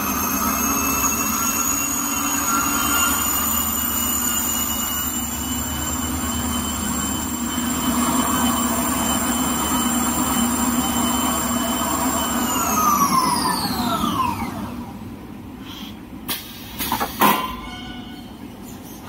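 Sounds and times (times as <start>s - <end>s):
high-pitched machine whines: 0.0s - 15.0s.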